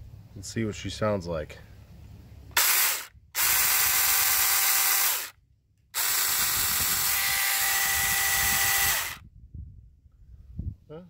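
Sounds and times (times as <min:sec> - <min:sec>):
mini chainsaw motor whine: 0:02.6 - 0:05.4, 0:06.0 - 0:09.2.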